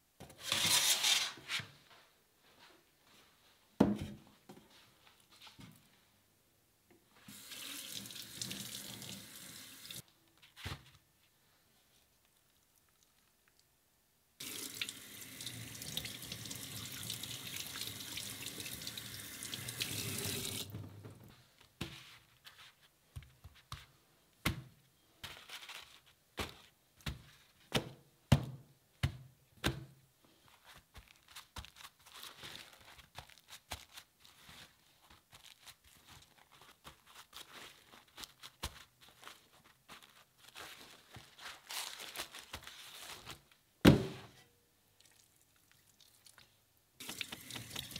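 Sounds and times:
paper rustling: 0:21.3 - 0:23.9, 0:25.2 - 0:27.7, 0:30.4 - 0:43.6
tap water splashing in sink: 0:47.0 - 0:47.9.

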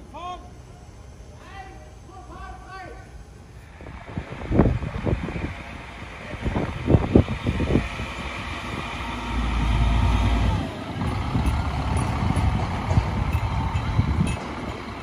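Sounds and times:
diesel railcar passing: 0:03.2 - 0:15.0.

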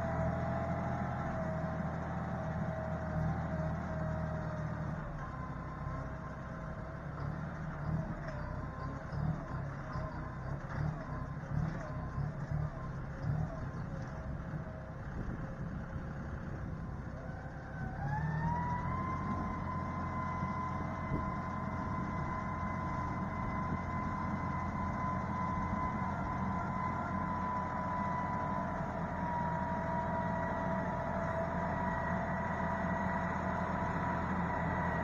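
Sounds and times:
tractor engine drone: 0:00.0 - 0:35.0.

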